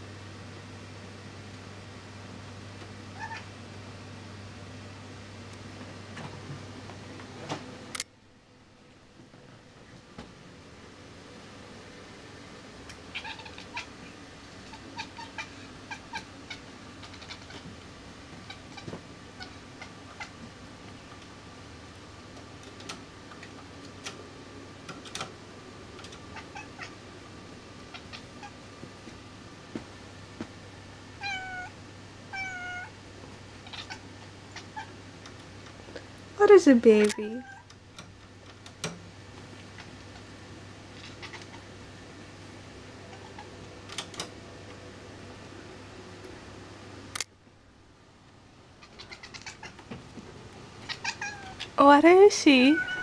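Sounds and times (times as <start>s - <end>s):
air conditioner hum: 0.0s - 53.0s
kitten chattering: 13.1s - 14.0s, 14.7s - 17.6s, 27.9s - 28.6s, 33.6s - 34.9s, 41.0s - 41.7s, 48.8s - 49.7s, 50.8s - 51.8s
sharp click: 47.1s - 47.3s.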